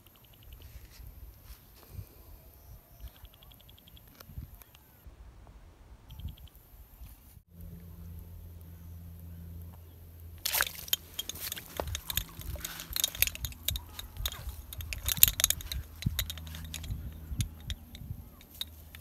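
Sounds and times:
fish splashing in water: 10.4s - 13.5s.

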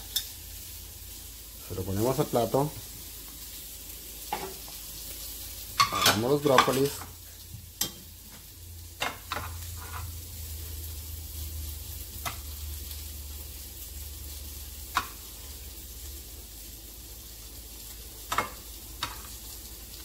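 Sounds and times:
tongs clinking on plate and pan: 0.0s - 0.4s, 5.8s - 7.1s, 7.8s - 8.1s, 9.0s - 10.1s, 18.3s - 19.4s.

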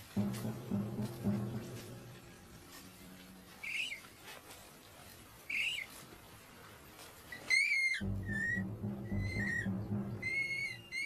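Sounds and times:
faint bush background: 0.0s - 11.0s
high-pitched animal calls: 7.4s - 11.0s.

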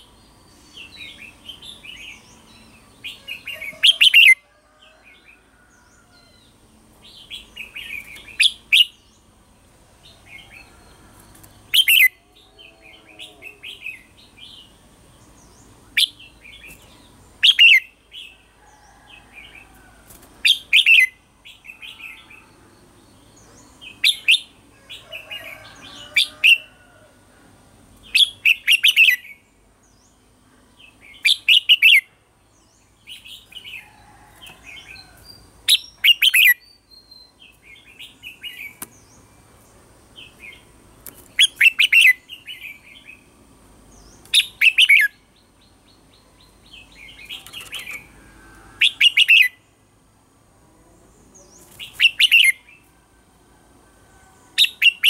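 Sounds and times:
bulbul singing: 10.1s - 18.5s, 28.1s - 33.8s, 34.7s - 43.3s, 43.9s - 48.2s, 48.8s - 49.8s, 51.3s - 52.9s, 54.6s - 55.0s.

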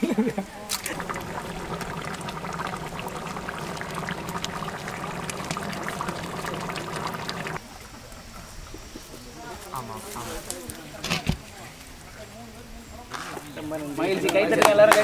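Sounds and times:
gravy bubbling in a pot: 0.9s - 7.6s
low steady hum: 0.9s - 7.6s.

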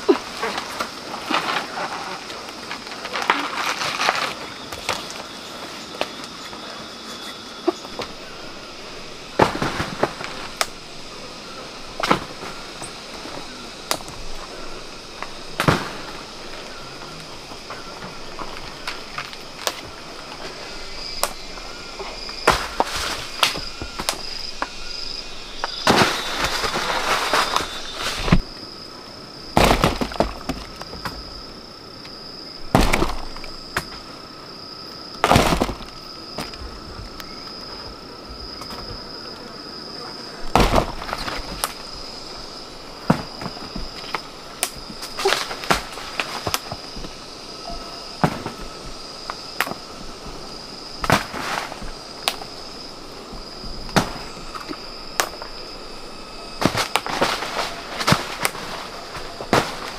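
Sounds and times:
rustling crackle: 0.0s - 28.6s, 40.4s - 59.9s
high insect trill: 0.0s - 59.9s
sharp knocks and cracks: 15.2s - 16.2s, 29.6s - 31.2s, 32.7s - 34.0s, 35.2s - 36.6s, 40.5s - 41.8s, 48.2s - 49.0s, 51.0s - 52.5s, 53.3s - 55.5s, 56.6s - 59.9s.

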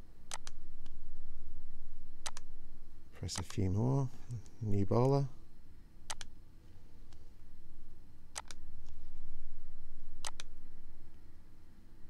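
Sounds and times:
low background rumble: 0.0s - 12.0s
computer mouse clicks: 0.3s - 1.0s, 2.2s - 2.5s, 6.1s - 6.3s, 8.3s - 8.6s, 10.2s - 10.5s.

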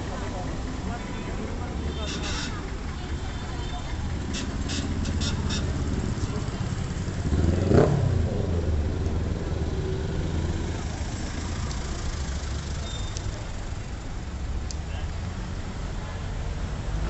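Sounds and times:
traffic engine rumble: 0.0s - 17.0s
vehicle passing close: 4.1s - 12.8s.

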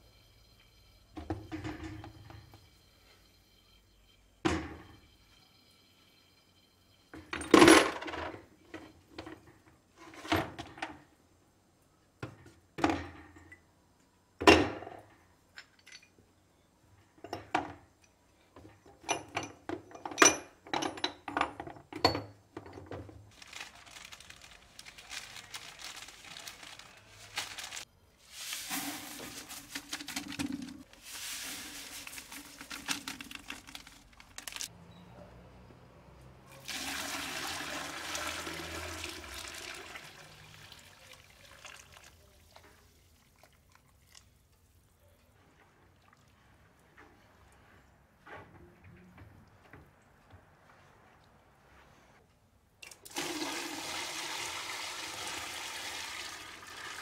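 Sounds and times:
metal parts knocking and clinking: 7.2s - 9.3s, 18.8s - 23.2s
rough rustling: 23.3s - 34.7s.

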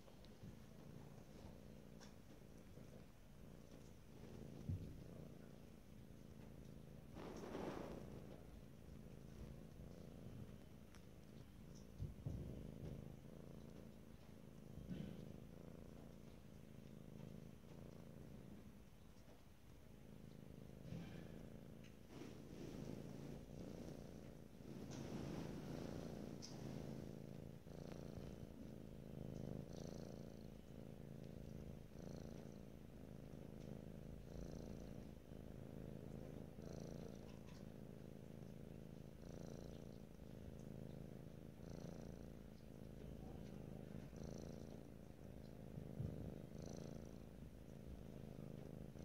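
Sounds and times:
kitten purring: 0.0s - 49.0s.

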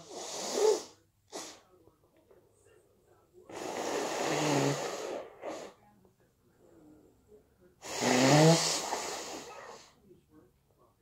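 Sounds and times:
person blowing nose: 0.0s - 1.6s, 3.5s - 5.7s, 7.8s - 9.8s.

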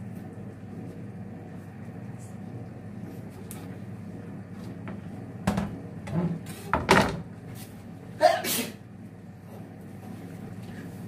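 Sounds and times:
steady low hum: 0.0s - 11.0s
person sneezing: 8.2s - 8.8s.

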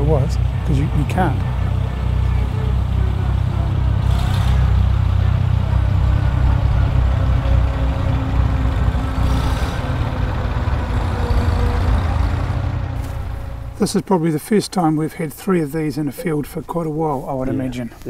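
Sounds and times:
tractor engine running: 0.0s - 17.4s.

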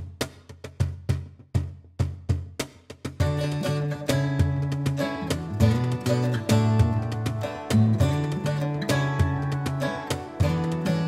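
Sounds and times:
low bass notes: 3.2s - 11.0s
strummed acoustic guitar: 3.2s - 11.0s.

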